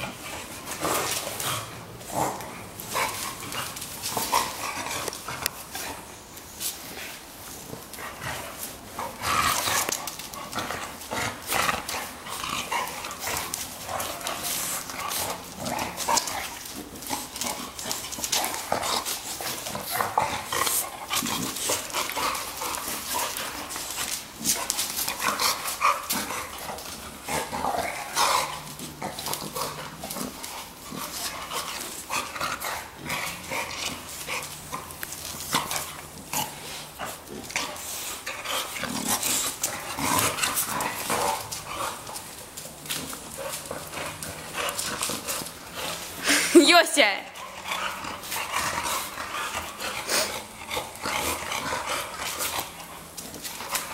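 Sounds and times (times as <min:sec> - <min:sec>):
dogs play-fighting vocal noises: 0:00.0 - 0:46.6, 0:47.3 - 0:53.9
dogs scuffling: 0:00.0 - 0:53.9.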